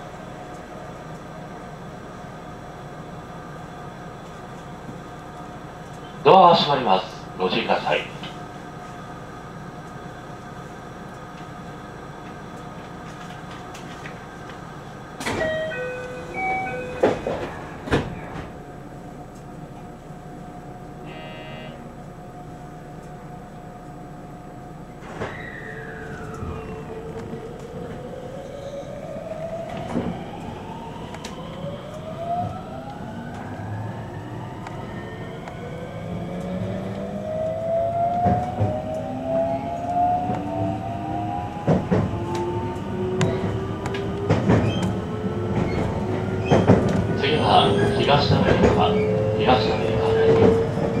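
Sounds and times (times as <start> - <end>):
traction motors whining: 24.9 - 51.0.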